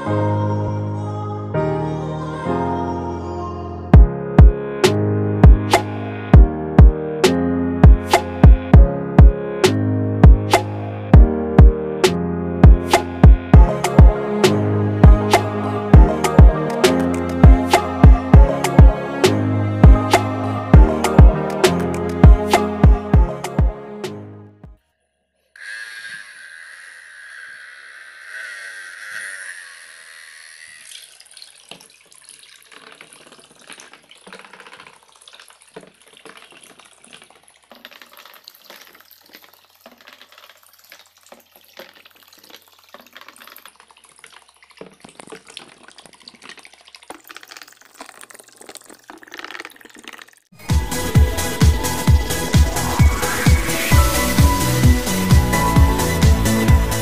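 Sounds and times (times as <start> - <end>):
small motor whine: 25.6 - 31.2
water splashing and sloshing: 30.6 - 54.6.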